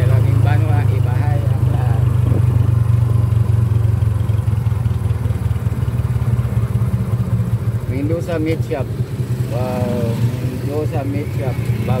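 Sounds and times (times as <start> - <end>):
small motorcycle engine running: 0.0 - 12.0.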